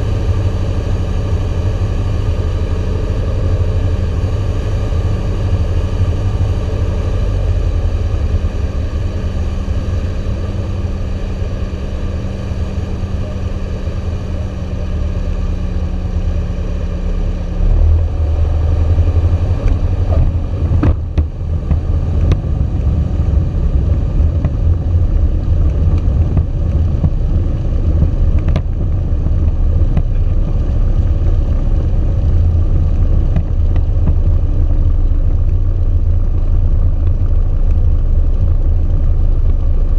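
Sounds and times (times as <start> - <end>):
airflow over airframe: 0.0 - 39.9
piston aircraft engine at low power: 0.0 - 39.9
wheels rumbling on runway: 0.0 - 39.9
sharp clicks and knocks: 19.6 - 22.5, 28.0 - 28.9, 29.9 - 30.2, 33.3 - 34.4.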